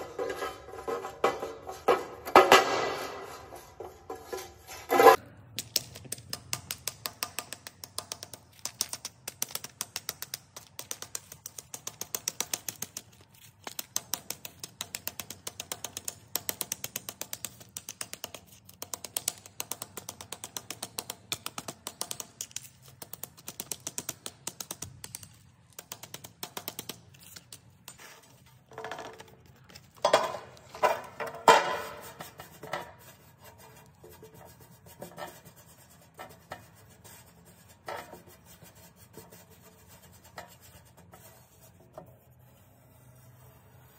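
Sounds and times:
scrapes and knocks: 0.0s - 5.2s, 21.2s - 43.9s.

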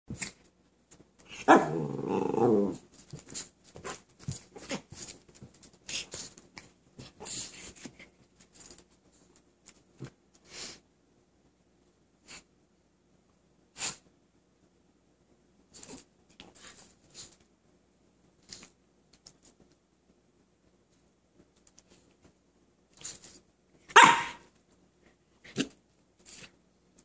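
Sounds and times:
dog growling: 1.3s - 2.8s
dogs scuffling: 2.9s - 8.9s.

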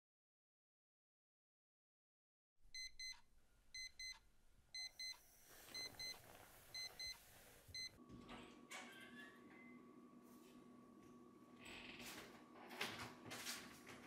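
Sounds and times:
alarm clock beeping: 2.8s - 3.2s, 3.8s - 4.1s, 4.8s - 8.0s.

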